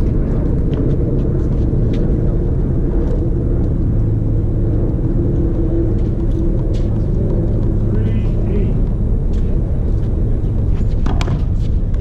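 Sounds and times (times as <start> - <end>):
low rumble: 0.0 - 12.0
racquetball strikes: 11.0 - 11.7.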